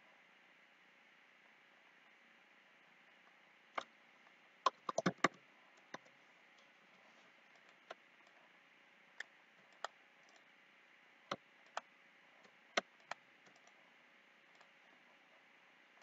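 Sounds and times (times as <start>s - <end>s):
computer mouse clicking: 4.7s - 6.1s, 9.2s - 10.5s, 11.6s - 13.8s, 14.5s - 14.7s.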